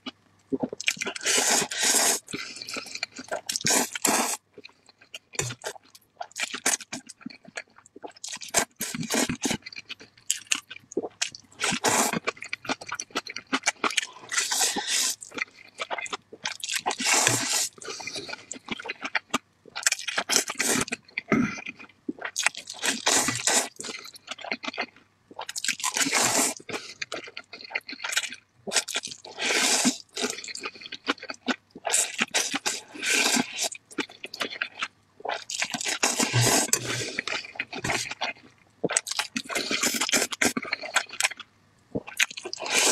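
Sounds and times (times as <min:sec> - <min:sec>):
chewing: 0:00.0 - 0:42.9
slurping noodles: 0:01.1 - 0:02.8, 0:03.5 - 0:04.4, 0:11.6 - 0:12.3, 0:14.2 - 0:15.3, 0:16.9 - 0:18.4, 0:22.8 - 0:23.9, 0:25.8 - 0:26.8, 0:28.7 - 0:30.4, 0:31.9 - 0:33.7, 0:35.5 - 0:38.2, 0:42.5 - 0:42.9.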